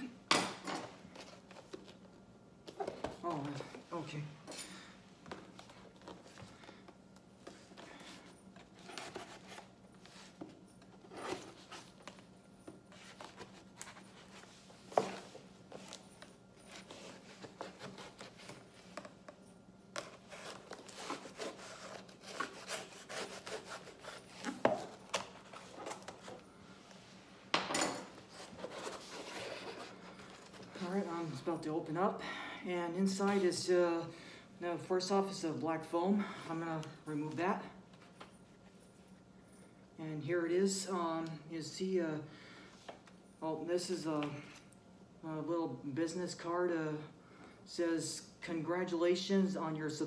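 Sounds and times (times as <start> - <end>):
knife rasping on cardboard: 20.9 - 24.6.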